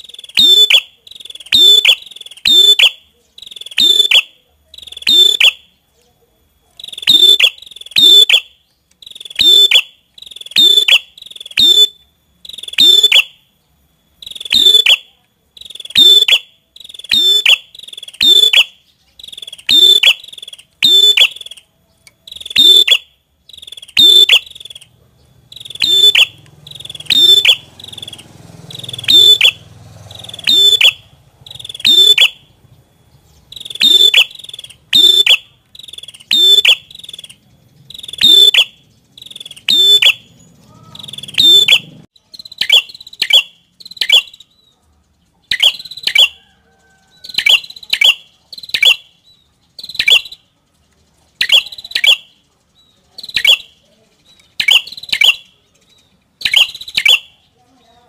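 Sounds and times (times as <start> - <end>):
low background hum: 0.0 - 42.5
bird chirping: 0.0 - 58.0.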